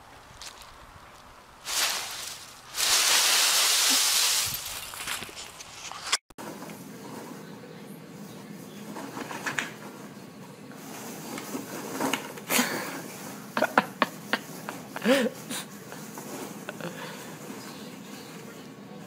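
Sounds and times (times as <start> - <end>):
packing peanuts rustling and crunching: 0.2 - 6.2.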